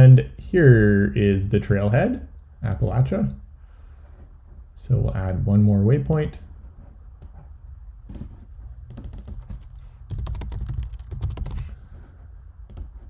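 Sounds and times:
computer keyboard typing: 8.9s - 11.8s, 12.7s - 13.0s.

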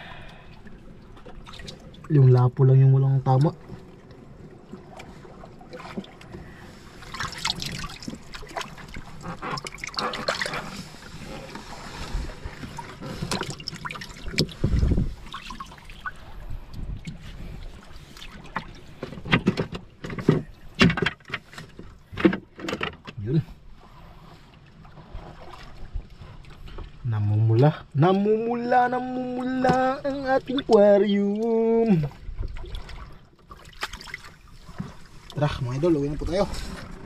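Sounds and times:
water splashing and trickling: 0.0s - 37.0s
knocks in a boat: 18.5s - 23.2s.

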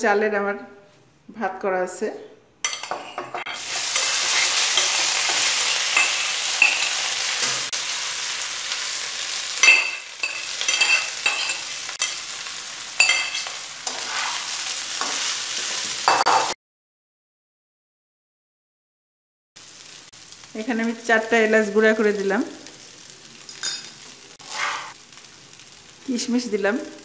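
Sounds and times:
metal spatula scraping a pan: 2.6s - 7.7s, 9.3s - 16.3s, 23.5s - 25.0s
rice sizzling in a wok: 2.6s - 16.6s, 19.6s - 27.0s.

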